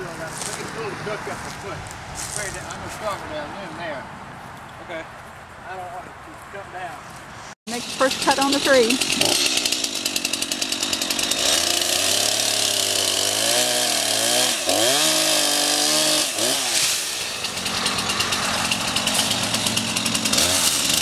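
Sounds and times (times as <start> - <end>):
chainsaw cutting wood: 7.7 - 21.0.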